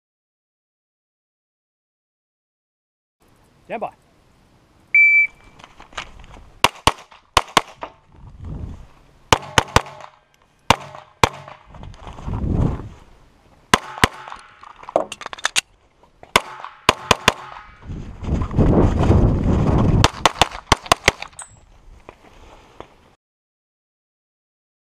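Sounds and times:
shot timer beep: 0:05.0 - 0:05.5
pistol gunshots: 0:06.6 - 0:07.9, 0:09.3 - 0:11.6, 0:13.7 - 0:14.6, 0:16.3 - 0:17.8, 0:20.0 - 0:21.3.

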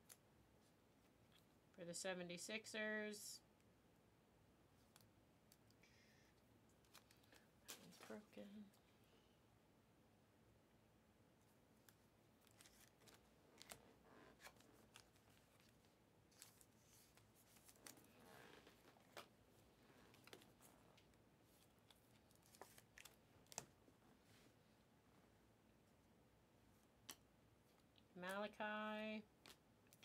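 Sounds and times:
light clicks and taps of cards: 0:27.0 - 0:28.4.

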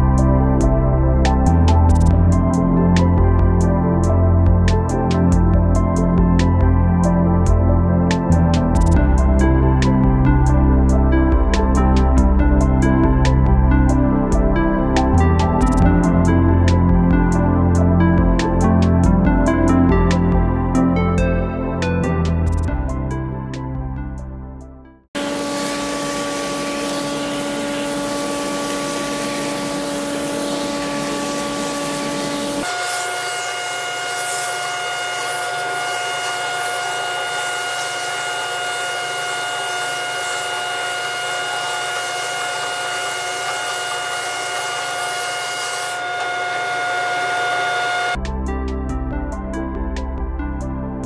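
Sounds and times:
power tool motor whine: 0:25.2 - 0:48.2.

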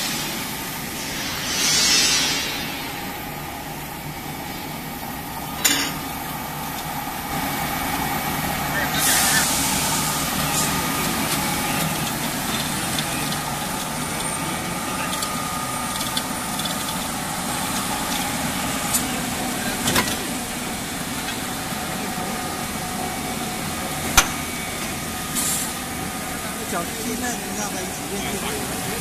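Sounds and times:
machinery humming: 0:00.0 - 0:13.4.

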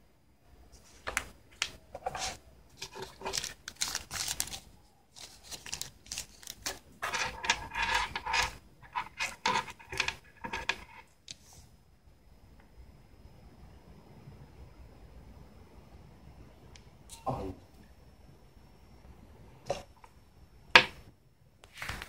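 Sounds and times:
cardboard and plastic bag rustling: 0:02.0 - 0:10.7.

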